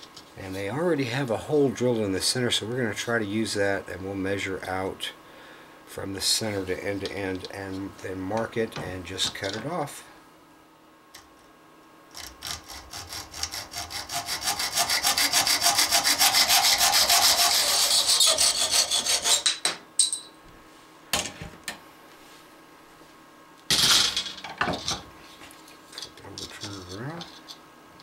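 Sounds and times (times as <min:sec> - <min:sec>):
hacksaw cutting metal: 0:12.2 - 0:19.6.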